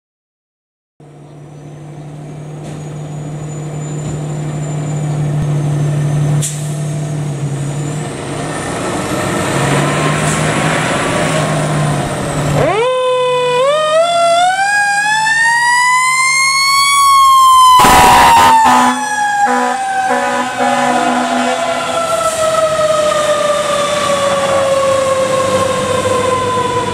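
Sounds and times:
fire truck engine running: 0:01.0 - 0:26.9
mechanical siren wailing: 0:12.6 - 0:26.9
air horn blasts: 0:17.8 - 0:22.4.

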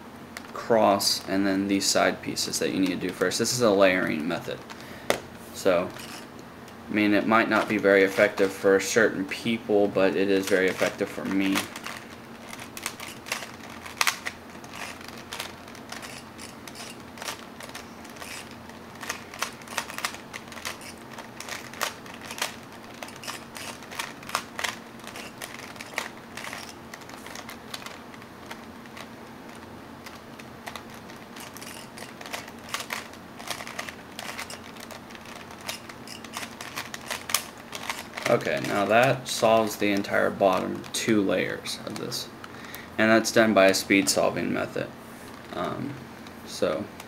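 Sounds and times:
plastic puzzle cube clicking: 0:10.4 - 0:39.2.

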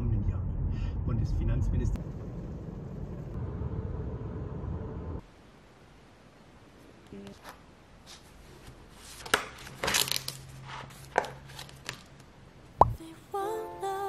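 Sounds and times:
pages turning rustle: 0:07.4 - 0:12.3.

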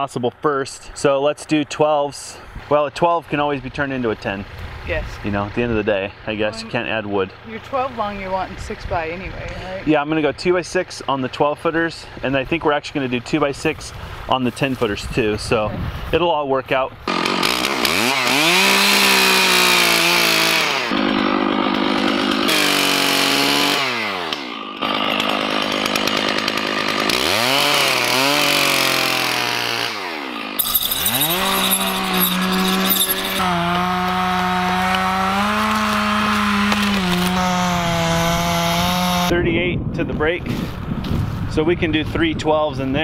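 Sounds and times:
chainsaw revving through logs: 0:17.0 - 0:39.3.

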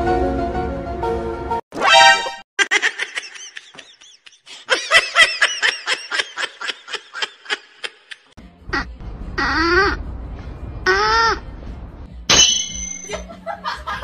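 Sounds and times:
high-pitched giggling laughter: 0:02.6 - 0:09.8.

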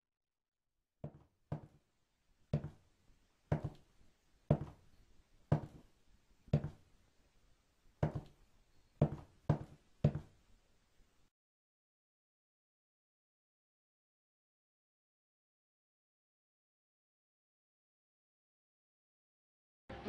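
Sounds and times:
footsteps on wooden floor: 0:01.0 - 0:01.8, 0:02.5 - 0:02.8, 0:03.5 - 0:03.8, 0:04.5 - 0:04.8, 0:05.5 - 0:05.9, 0:06.5 - 0:06.8, 0:08.0 - 0:08.4, 0:09.0 - 0:10.4.

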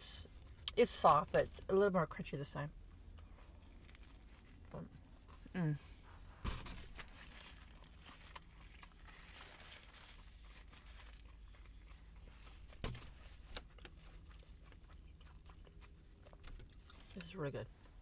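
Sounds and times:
low steady hum: 0:00.0 - 0:18.0
eating a sandwich: 0:02.8 - 0:18.0
paper napkin crinkles: 0:06.8 - 0:12.7.

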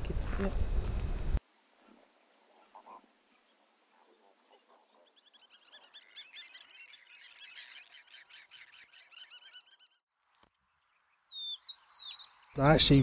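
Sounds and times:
chorus of birds chirping: 0:02.6 - 0:13.0.

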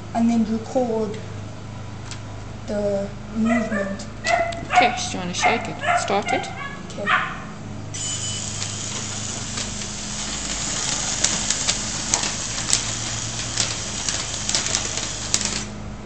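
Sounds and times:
small electric motor whirring: 0:08.0 - 0:15.8.

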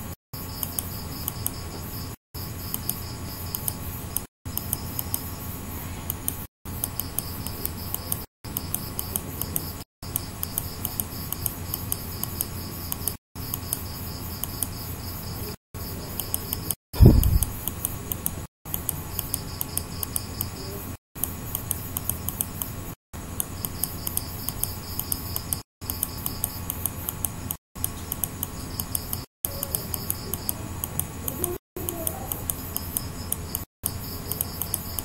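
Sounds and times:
mouse scroll wheel ticking: 0:00.5 - 0:01.6, 0:02.6 - 0:05.4, 0:06.1 - 0:14.8, 0:16.1 - 0:22.8, 0:23.4 - 0:35.0
recording hiss and hum: 0:15.3 - 0:18.4.

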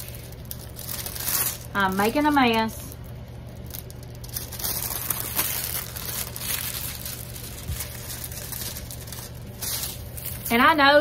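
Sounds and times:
plastic cover crinkling: 0:00.0 - 0:11.0.

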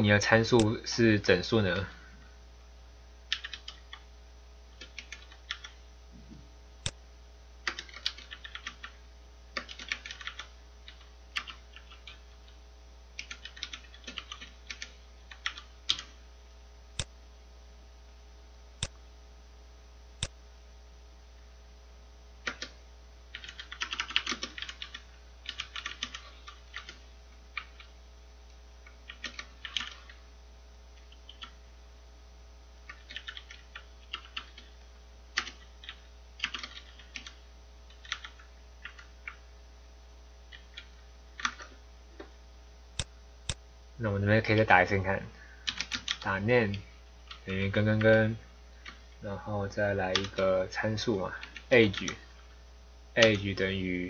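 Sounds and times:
keyboard typing clicks: 0:03.3 - 0:04.0, 0:04.8 - 0:05.8, 0:07.6 - 0:09.0, 0:09.6 - 0:12.6, 0:13.2 - 0:16.2, 0:22.4 - 0:27.0, 0:28.8 - 0:30.2, 0:31.0 - 0:31.6, 0:32.9 - 0:34.7, 0:35.4 - 0:39.4, 0:40.5 - 0:42.3, 0:50.1 - 0:50.4.

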